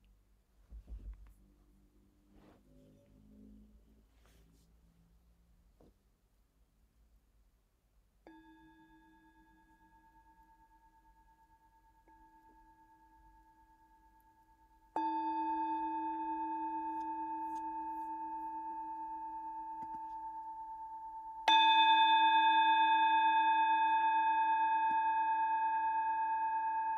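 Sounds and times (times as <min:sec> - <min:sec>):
singing bowl struck and ringing: 0:08.2 - 0:26.9.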